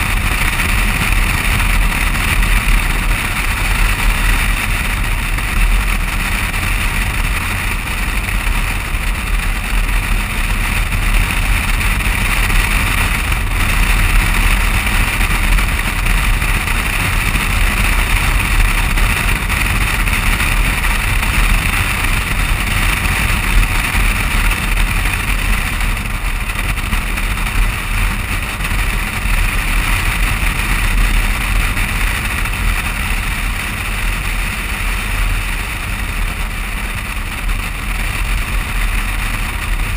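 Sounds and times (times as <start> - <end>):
car driving at speed: 0.0 - 39.9.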